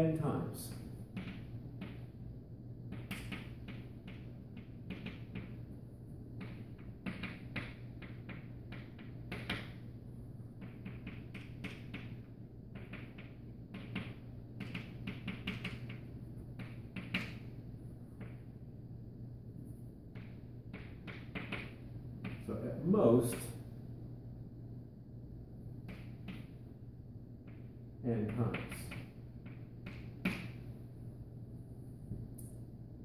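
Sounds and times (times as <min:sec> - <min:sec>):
steady low hum: 0:00.0 - 0:33.0
chalk tapping and scraping: 0:10.6 - 0:12.2.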